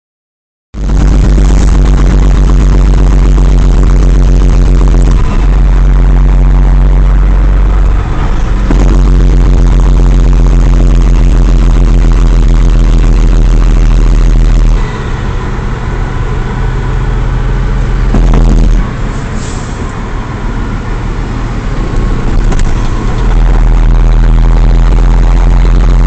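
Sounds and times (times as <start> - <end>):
diesel truck engine droning: 0.8 - 26.0.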